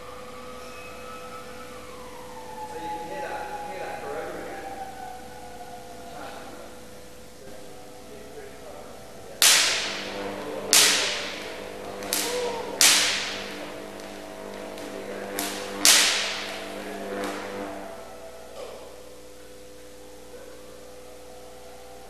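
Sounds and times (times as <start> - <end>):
steady electrical hum: 0.0 - 22.0
electric spark cracks: 9.3 - 18.2.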